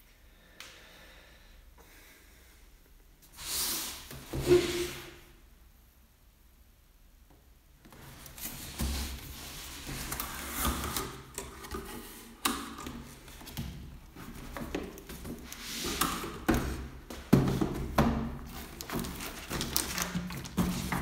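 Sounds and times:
cardboard knocks and taps: 16.4 - 18.4.

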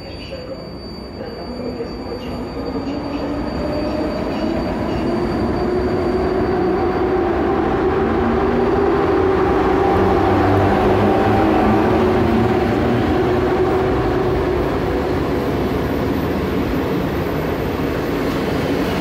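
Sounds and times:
train wheels rumbling: 0.0 - 19.0
train motor hum: 1.3 - 19.0.

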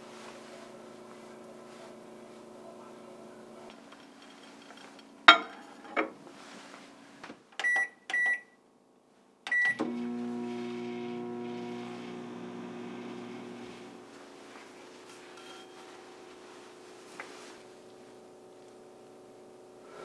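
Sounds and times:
keypad beeps: 7.6 - 8.6
microwave oven humming: 9.6 - 20.0.

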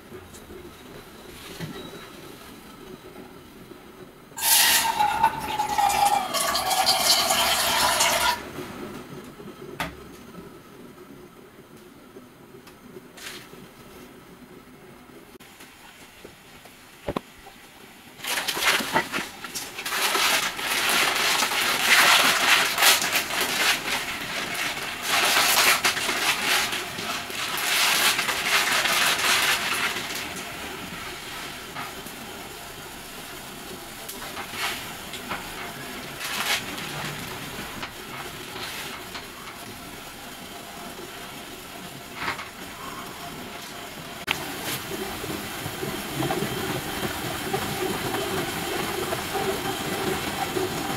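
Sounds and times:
gas stove hissing: 0.0 - 10.2, 15.4 - 50.9
plastic packet crinkling: 18.2 - 30.3.

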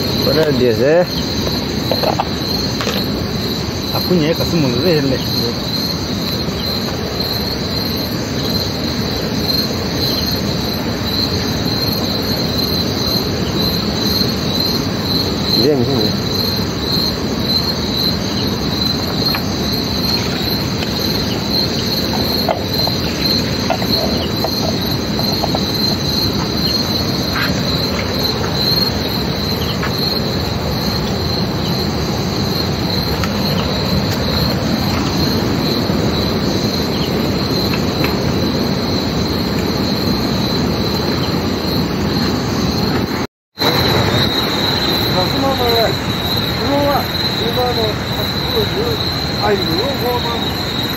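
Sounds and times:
night insects chirring: 0.0 - 50.9.

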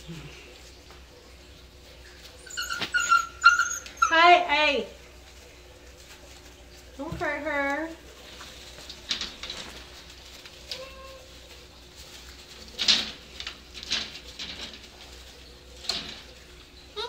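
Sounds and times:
paws scratching on pads: 0.5 - 12.8
puppy squeak: 2.4 - 4.3.

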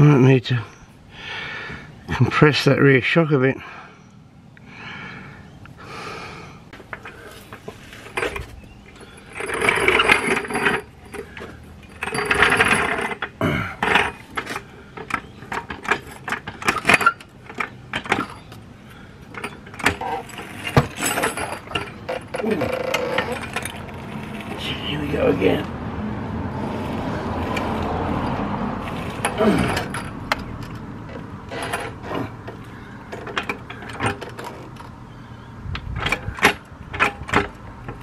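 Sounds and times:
floor jack metal clicks and clanks: 6.8 - 24.8, 27.4 - 35.0, 35.7 - 38.0.

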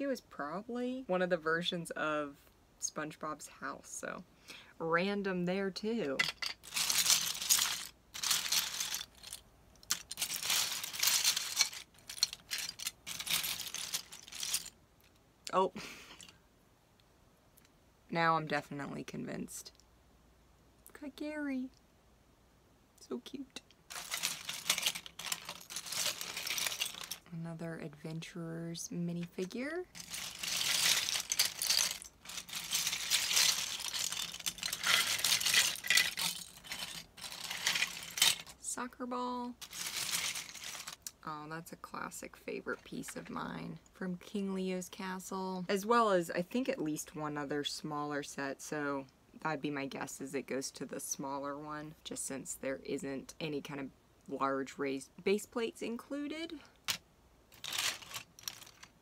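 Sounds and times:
plastic bricks clattering: 6.1 - 14.7, 23.9 - 27.3, 29.4 - 38.5, 39.6 - 41.1, 56.9 - 59.0.

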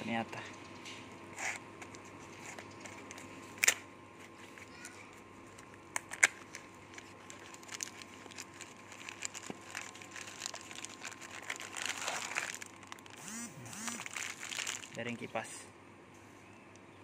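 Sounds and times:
cardboard and plastic crinkling: 1.8 - 15.2.

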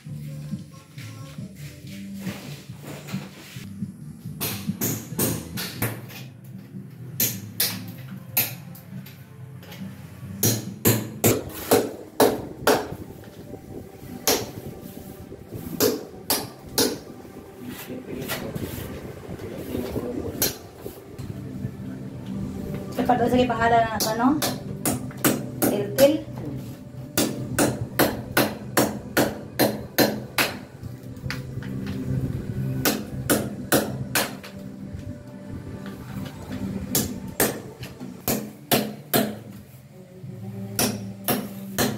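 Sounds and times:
hammer striking chisel on cement: 24.0 - 26.2, 27.2 - 30.7, 36.9 - 39.5.

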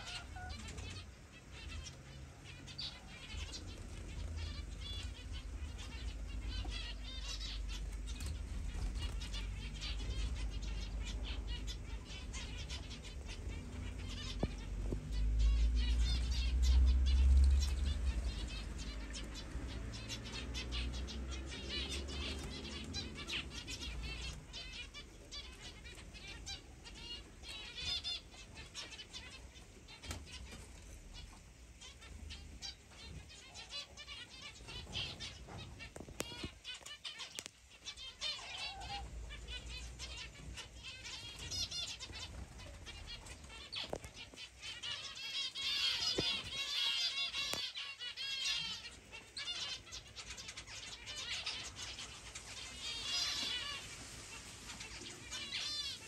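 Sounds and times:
wings fluttering: 0.0 - 11.6, 34.5 - 48.6, 50.6 - 56.0
small birds chirping and twittering: 0.0 - 56.0.

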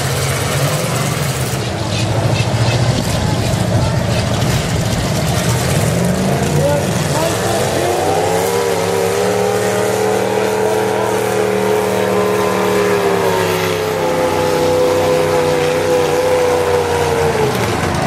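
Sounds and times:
car engines at high revs: 0.0 - 18.0.

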